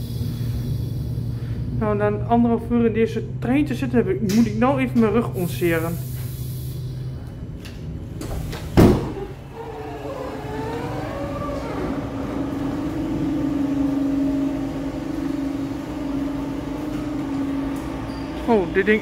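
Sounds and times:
electric train motors whining: 9.2 - 19.0.

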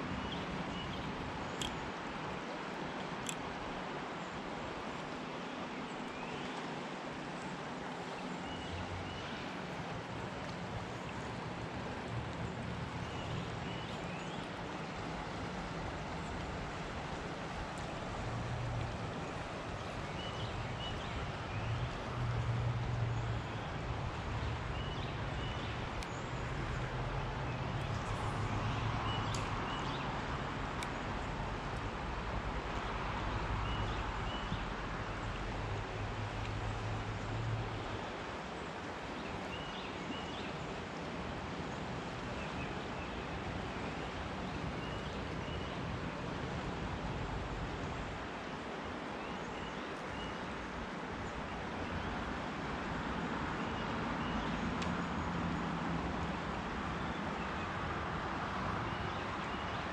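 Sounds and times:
river flowing over rocks: 0.0 - 59.9
faint ticks: 1.5 - 1.8, 3.0 - 3.5, 26.0 - 26.2.

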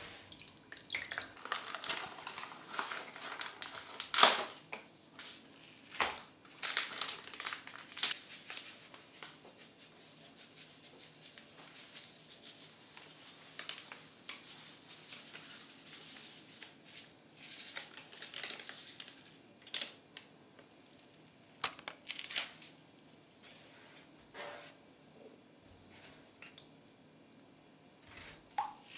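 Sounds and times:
powder sachet crinkling: 1.1 - 4.7, 5.5 - 22.7
sachet tearing open: 1.4 - 4.6, 5.9 - 8.2, 17.7 - 20.0, 21.6 - 22.7.

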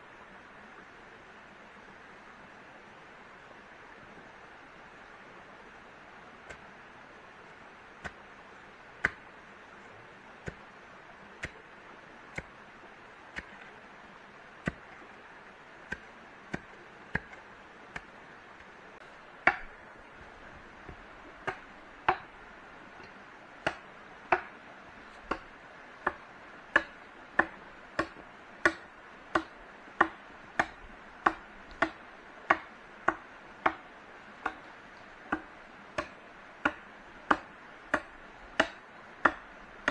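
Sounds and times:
background hiss: 0.0 - 39.9
blade chopping wood: 9.0 - 9.2, 10.4 - 10.6, 11.4 - 11.6, 12.3 - 12.5, 13.3 - 13.7, 14.6 - 15.0, 15.9 - 18.1, 19.4 - 20.3, 20.9 - 22.3, 23.6 - 24.5, 25.2 - 26.2, 26.8 - 33.8, 35.3 - 39.9.

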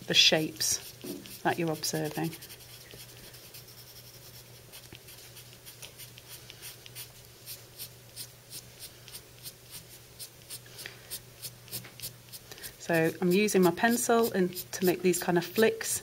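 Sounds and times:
pencil scratching on paper: 0.6 - 7.1.

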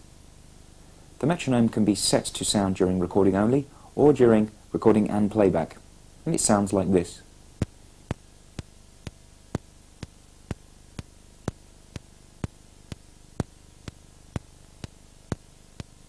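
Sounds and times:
metronome clicking: 7.6 - 16.0.

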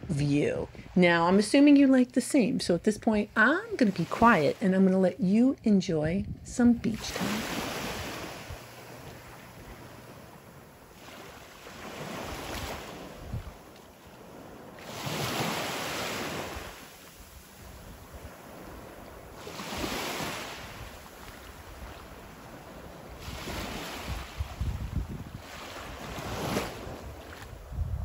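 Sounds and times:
wind buffeting microphone: 5.6 - 11.1, 11.9 - 15.6, 16.2 - 28.0
small waves washing onto beach: 7.0 - 28.0.

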